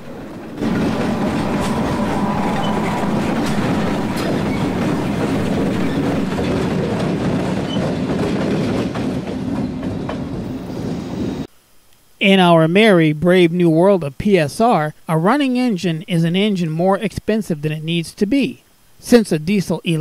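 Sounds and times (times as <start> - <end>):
locomotives rumbling: 0.0 - 9.8
wheels clicking over rail joints: 0.0 - 10.5.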